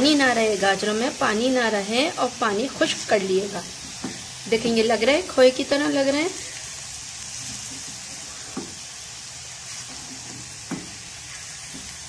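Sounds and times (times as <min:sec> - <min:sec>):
food sizzling in a pot: 0:00.0 - 0:12.0
spatula stirring: 0:07.3 - 0:08.8, 0:09.6 - 0:12.0.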